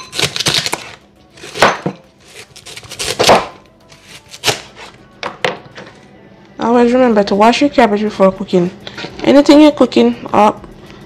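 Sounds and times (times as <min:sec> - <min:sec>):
knife striking cutting board: 0:00.0 - 0:02.0, 0:02.8 - 0:03.6
knife slicing cabbage: 0:00.0 - 0:05.0.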